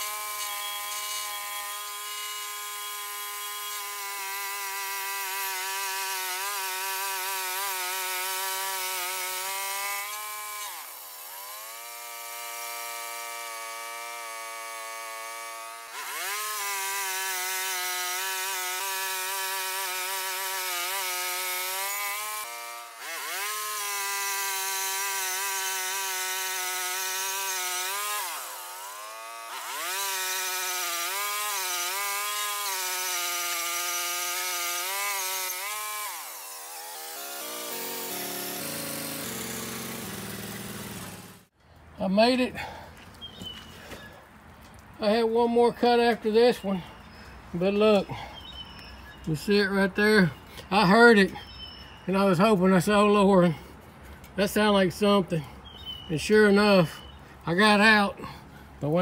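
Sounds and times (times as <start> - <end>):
sawmill gas engine running: 37.4 - 41.4.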